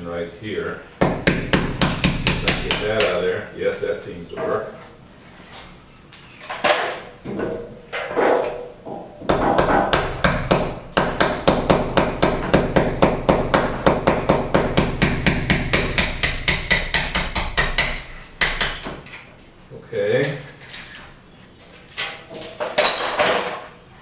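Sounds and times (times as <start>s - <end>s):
hammer tapping a chisel: 1.0s - 3.2s, 9.3s - 18.9s.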